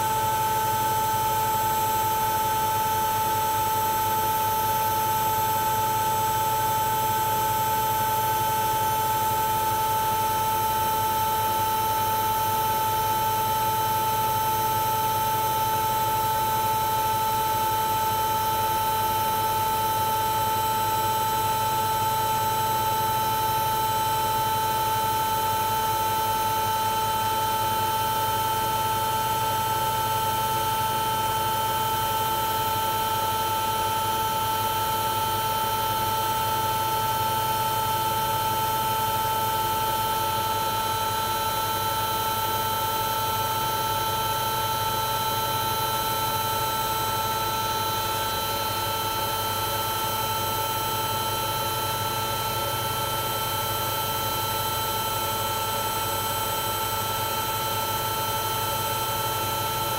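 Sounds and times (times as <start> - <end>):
washing machine spin cycle: 0.0 - 59.9.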